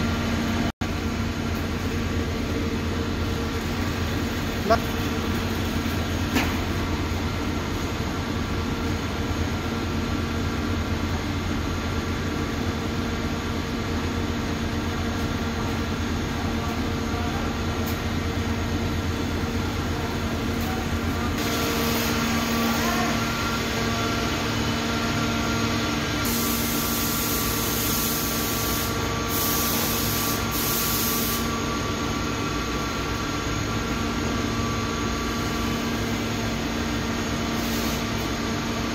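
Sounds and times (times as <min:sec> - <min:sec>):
loud hiss: 0:26.2 - 0:31.5.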